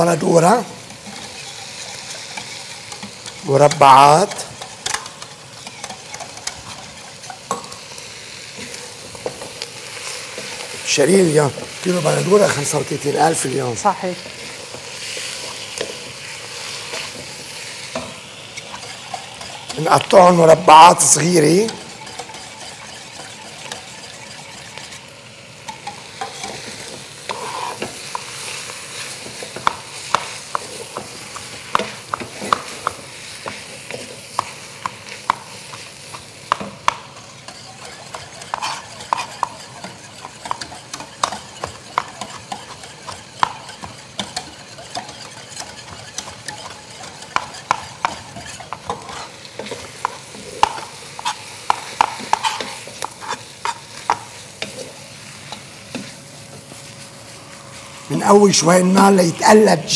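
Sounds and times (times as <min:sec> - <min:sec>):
chicken sizzling in a pot: 0:00.0 - 0:59.9
knife chopping on cutting board: 0:47.3 - 0:54.3.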